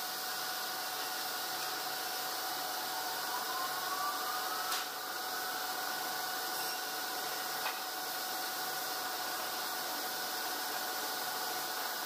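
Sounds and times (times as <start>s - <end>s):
sawmill machinery hissing and whining: 0.0s - 12.0s.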